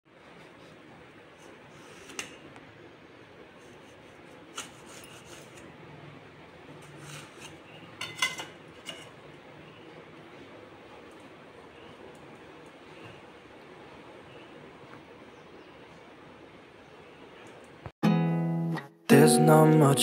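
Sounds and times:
knife clinking and scraping on plate: 6.8s - 9.2s.

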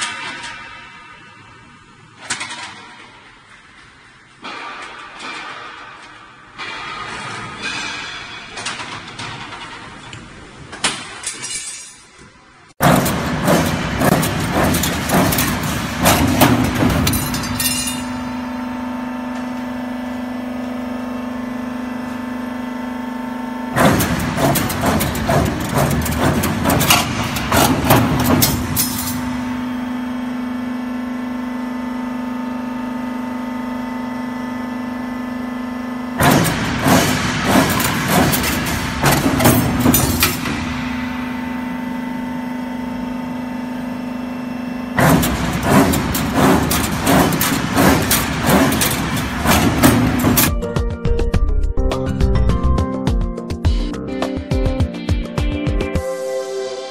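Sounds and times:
metal rattling and clanking: 12.8s - 18.2s, 23.8s - 29.4s, 36.2s - 40.8s, 45.0s - 50.5s
machine motor hum: 12.8s - 50.6s.

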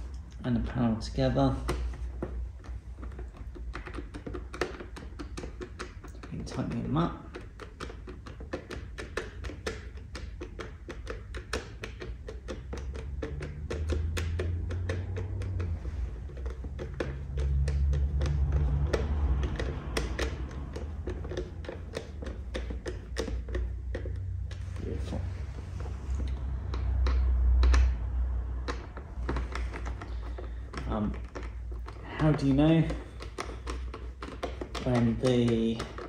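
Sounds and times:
hand driver ratcheting clicks: 2.6s - 24.6s.

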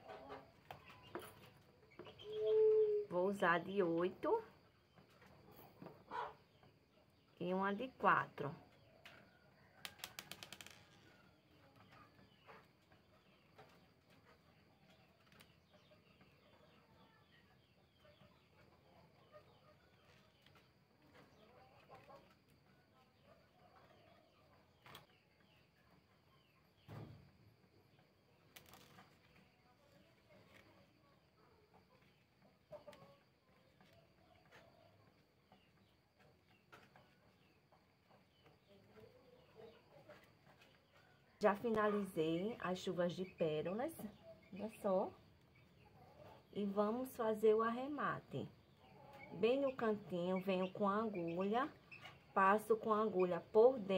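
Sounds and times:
faint bird chirps: 0.0s - 3.6s.

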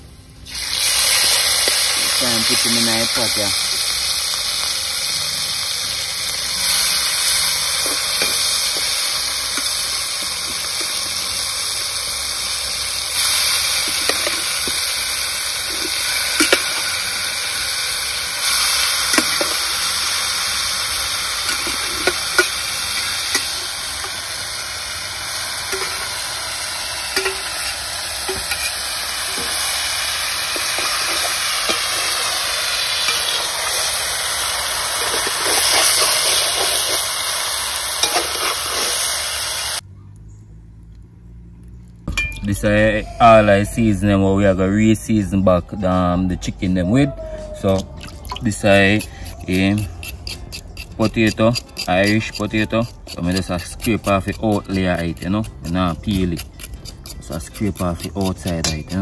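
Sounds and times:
meat sizzling in oil: 0.5s - 39.8s
metal spatula scraping pan: 6.6s - 11.1s, 13.2s - 14.8s, 21.4s - 24.2s, 25.7s - 26.2s, 27.1s - 34.0s, 34.7s - 37.2s, 38.0s - 39.2s.

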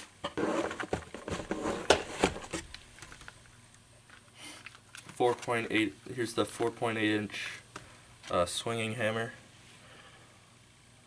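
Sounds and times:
plastic packaging crinkling: 2.2s - 5.7s.

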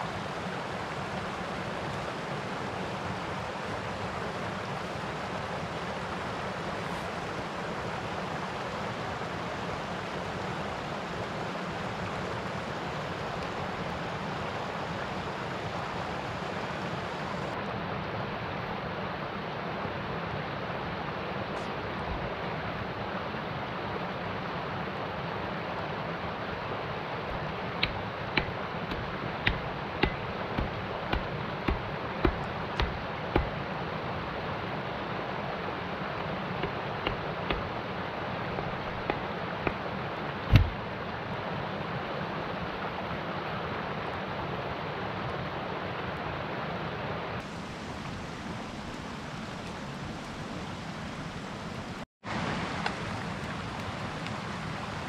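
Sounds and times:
stream rushing over rocks: 0.0s - 55.0s
wood chopping knocks: 27.8s - 33.6s, 36.6s - 37.7s, 38.6s - 39.8s, 40.5s - 40.8s.

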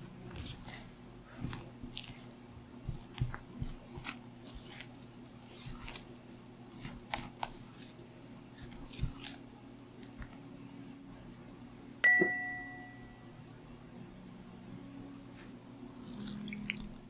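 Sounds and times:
spatula scraping batter: 0.0s - 10.5s.

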